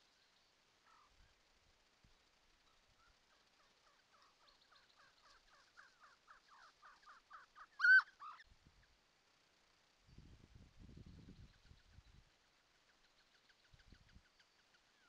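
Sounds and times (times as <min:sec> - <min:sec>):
quail calling: 0:03.8 - 0:08.5.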